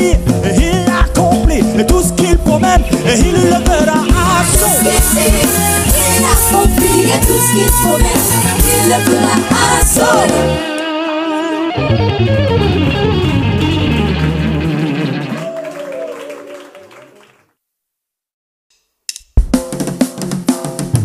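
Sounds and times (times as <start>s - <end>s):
music with drum kit: 0.0s - 10.8s, 19.1s - 21.0s
background music with guitar: 0.0s - 15.4s.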